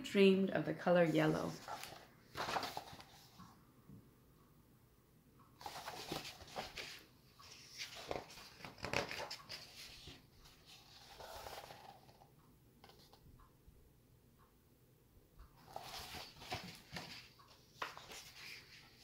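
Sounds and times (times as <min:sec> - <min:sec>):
paper pages rustling: 0:01.5 - 0:03.5, 0:05.6 - 0:13.2, 0:15.6 - 0:19.0.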